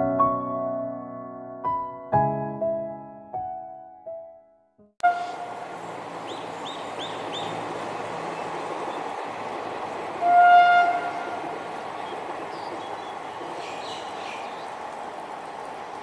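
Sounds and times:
locomotive horn: 5.0s - 5.7s, 10.2s - 11.6s
bird chirps: 6.2s - 7.6s, 12.0s - 14.8s.

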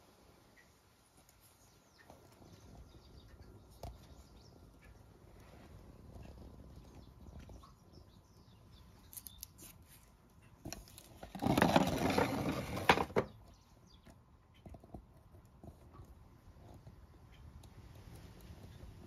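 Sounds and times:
small ticks and clicks: 0.5s - 11.7s, 13.2s - 19.0s.

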